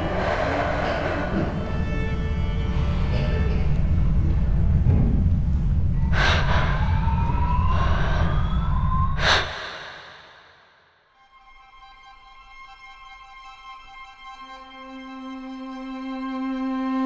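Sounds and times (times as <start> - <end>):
sharp breathy bursts: 0.0 - 2.9, 6.0 - 11.1
loud low rumble: 0.0 - 11.0
rising whine: 0.0 - 11.0
soft string music: 1.2 - 4.7, 11.2 - 17.0.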